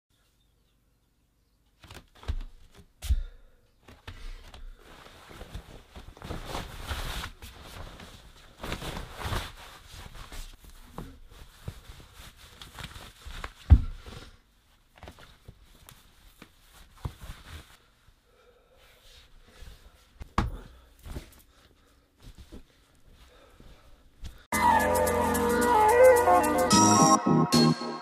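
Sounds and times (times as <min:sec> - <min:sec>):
clothing rustling: 0:03.8 - 0:18.2, 0:18.8 - 0:24.5.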